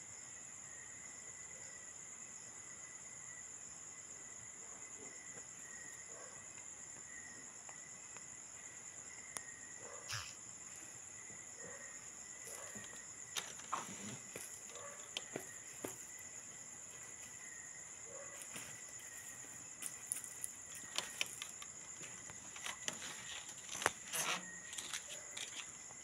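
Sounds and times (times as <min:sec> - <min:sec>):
insect chorus trilling: 0:00.1 - 0:26.0
clicks and scuffs: 0:19.8 - 0:25.8.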